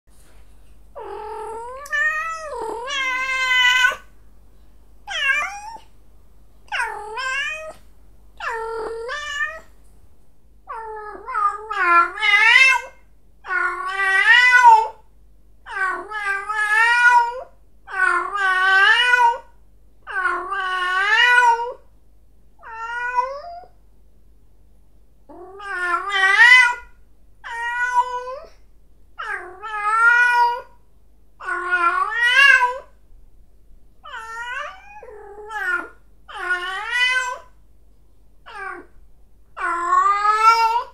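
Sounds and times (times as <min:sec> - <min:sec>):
cat yowling: 0:01.0 - 0:04.1, 0:05.1 - 0:05.9, 0:06.7 - 0:07.8, 0:08.4 - 0:09.7, 0:10.7 - 0:15.0, 0:22.6 - 0:23.7, 0:25.4 - 0:28.6, 0:29.2 - 0:30.8, 0:31.4 - 0:33.0, 0:34.0 - 0:37.5, 0:38.5 - 0:38.9, 0:39.6 - 0:40.9.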